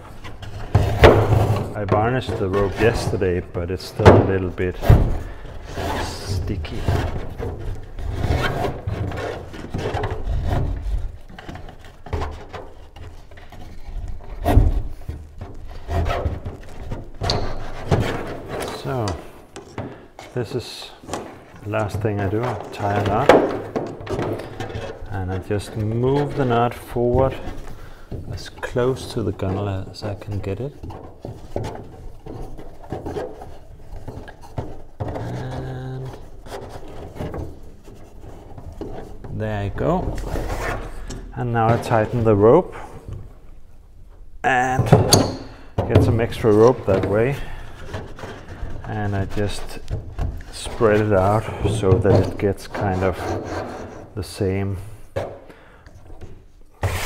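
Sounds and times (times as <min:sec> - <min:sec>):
rope rubbing on wood: 0:00.0 - 0:43.6, 0:45.4 - 0:55.5, 0:56.4 - 0:57.0.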